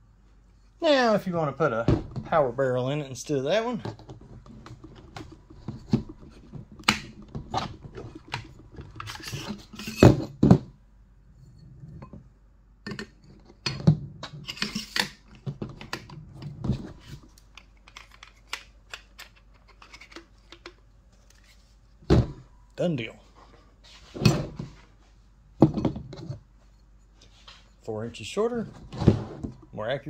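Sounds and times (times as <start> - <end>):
metal parts clicking and scraping: 7.1 - 10.4, 14.4 - 21.6.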